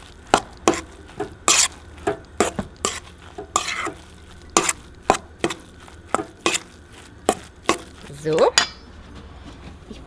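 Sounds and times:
metal spoon scraping a steel bowl: 2.8s - 4.0s.

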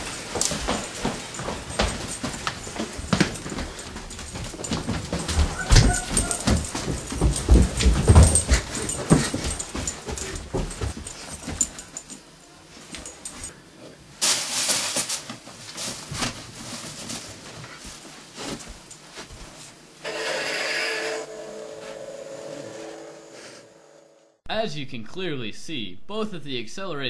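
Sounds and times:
thumps and knocks of furniture: 4.3s - 11.8s
rustling: 14.2s - 19.8s.

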